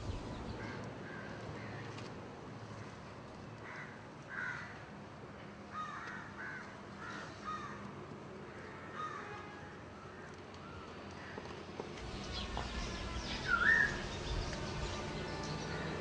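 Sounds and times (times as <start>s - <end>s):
crows cawing: 3.6s - 4.8s, 5.7s - 7.8s.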